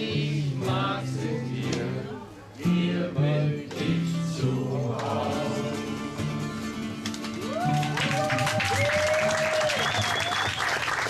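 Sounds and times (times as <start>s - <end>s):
acoustic guitars strumming: 0.0s - 8.0s.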